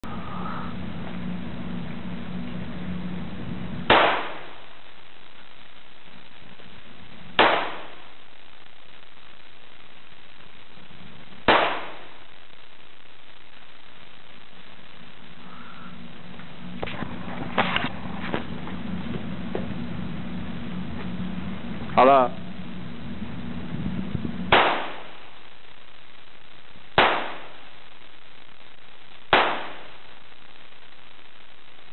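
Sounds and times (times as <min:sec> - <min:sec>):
handgun shots with echo: 0:03.9 - 0:04.5, 0:07.4 - 0:07.9, 0:24.5 - 0:25.0, 0:27.0 - 0:27.5, 0:29.3 - 0:29.8.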